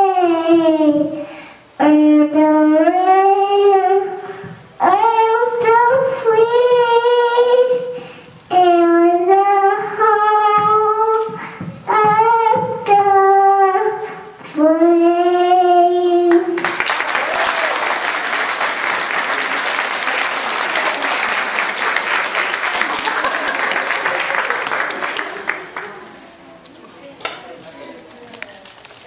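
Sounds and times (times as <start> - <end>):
girl singing into a microphone: 0.0 - 16.6
audience applauding: 16.6 - 26.2.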